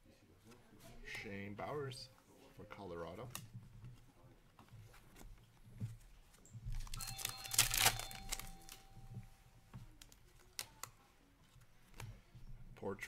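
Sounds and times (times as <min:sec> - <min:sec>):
trading cards shuffling: 0:03.3 - 0:12.2.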